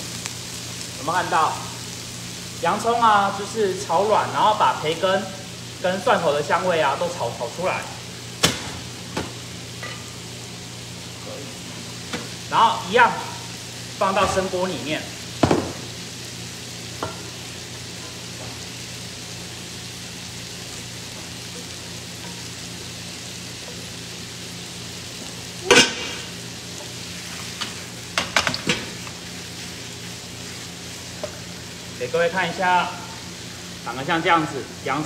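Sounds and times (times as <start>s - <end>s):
meat sizzling in a frying pan: 0.0s - 35.0s
spatula knocking and scraping pans: 27.6s - 29.2s.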